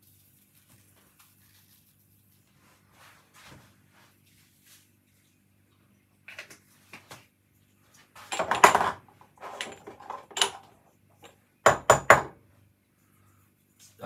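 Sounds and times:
spice containers rattling and scraping: 0:08.0 - 0:11.4.

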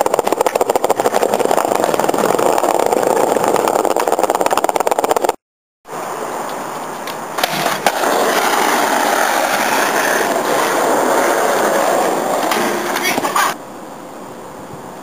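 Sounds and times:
skateboard clacks: 0:00.0 - 0:05.4, 0:07.0 - 0:13.6
skateboard wheels rolling on pavement: 0:00.0 - 0:15.0.

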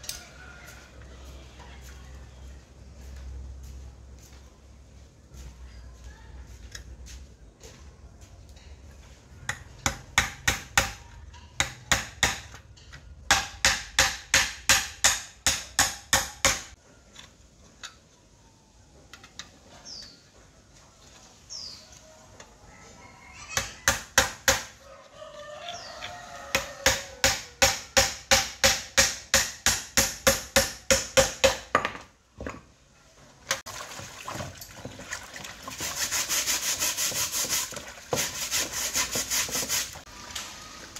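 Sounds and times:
rooster crowing: 0:00.0 - 0:01.0, 0:22.7 - 0:23.9, 0:24.8 - 0:27.6
hammer tapping nail through metal: 0:26.9 - 0:31.9
hose water running into basin: 0:33.6 - 0:40.9.

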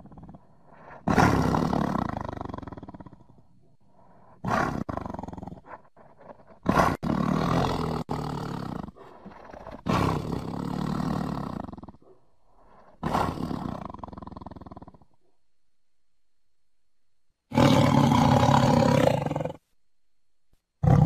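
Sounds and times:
tiger roaring: 0:00.0 - 0:03.8, 0:04.4 - 0:15.1, 0:17.5 - 0:19.6, 0:20.8 - 0:21.0.

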